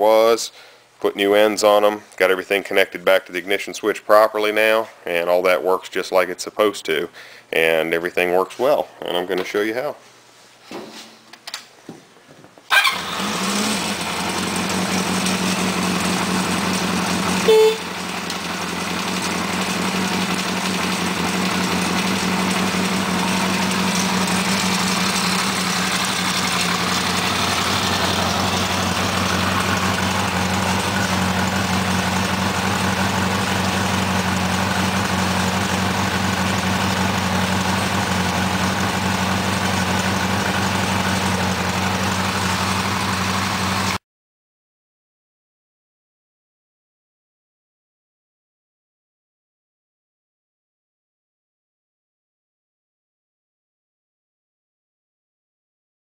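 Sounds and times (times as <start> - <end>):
motorcycle engine idling: 12.7 - 44.0
short horn beep: 17.4 - 18.0.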